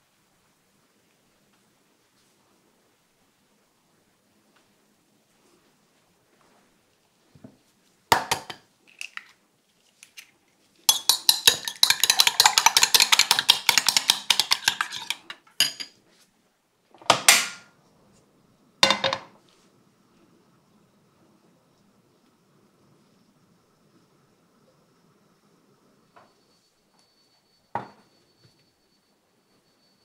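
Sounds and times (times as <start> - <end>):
utensil clinking against glass bowl: 10.9 - 15.9
kitchenware clinks and knocks: 10.9 - 16.0, 17.0 - 17.7, 18.8 - 19.3.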